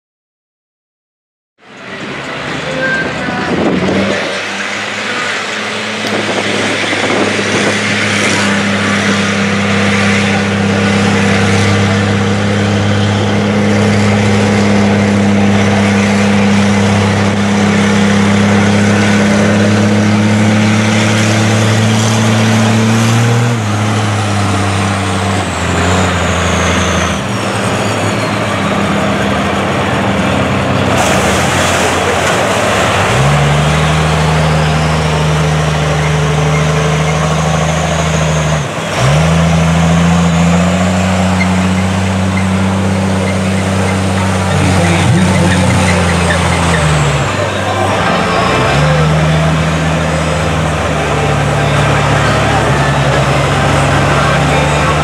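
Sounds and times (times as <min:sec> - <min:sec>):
high whine: 0:01.6 - 0:39.0
truck engine revving: 0:01.6 - 0:55.0.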